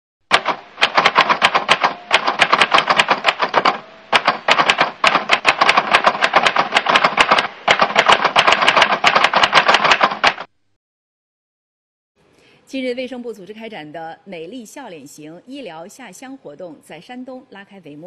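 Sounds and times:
typewriter key clicks: 0.3 - 10.5.

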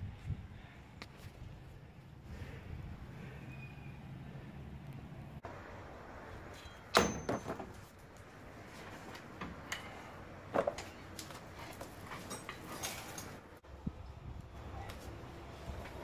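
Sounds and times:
heavy steel parts clanking: 6.5 - 8.0, 11.8 - 13.4.

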